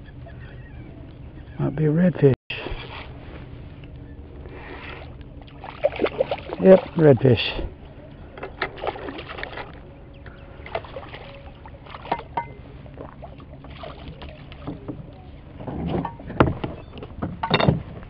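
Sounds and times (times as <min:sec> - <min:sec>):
fish splashing at the surface: 0:04.9 - 0:06.9, 0:13.0 - 0:14.6.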